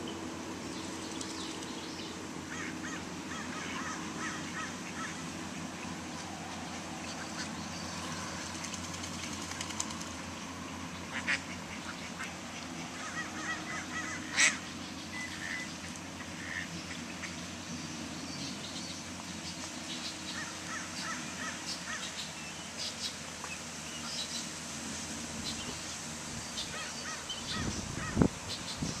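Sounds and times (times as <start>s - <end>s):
low background hum: 0.0s - 29.0s
ducks quacking: 11.1s - 17.4s.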